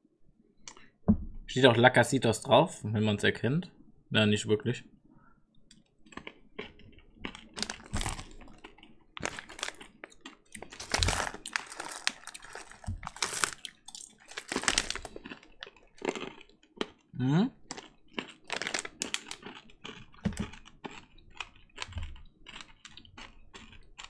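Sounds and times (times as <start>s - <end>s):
chewing crunchy sweets: 5.6s - 24.0s
plastic packet crinkling: 7.3s - 16.6s, 17.7s - 20.7s.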